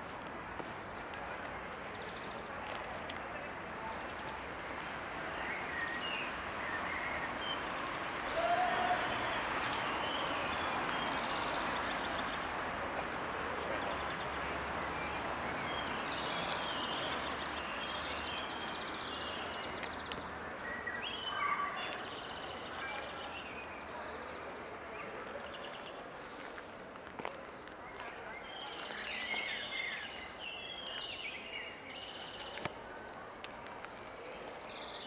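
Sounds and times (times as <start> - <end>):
small birds chirping: 15.0 - 26.4, 27.9 - 32.8.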